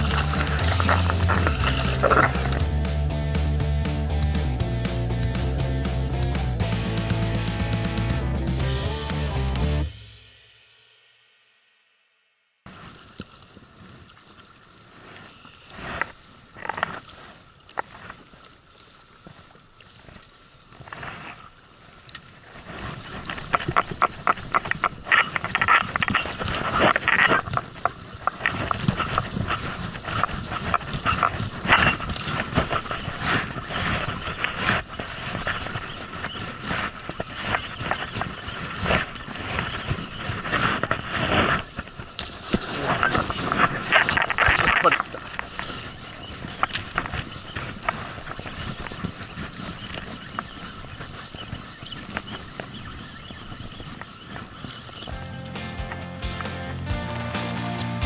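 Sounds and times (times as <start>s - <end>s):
fishing reel clicking and rattling: 0.0s - 2.8s.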